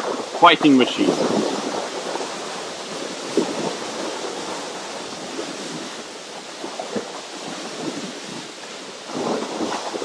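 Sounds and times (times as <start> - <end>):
lake waves lapping: 0.0 - 10.0
water splashes: 0.0 - 10.0
wind on microphone: 0.0 - 10.0.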